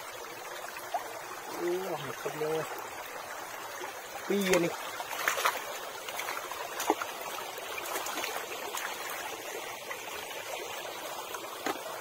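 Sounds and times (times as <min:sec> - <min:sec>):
stream water trickling: 0:00.0 - 0:12.0
hands splashing in water: 0:05.1 - 0:07.1.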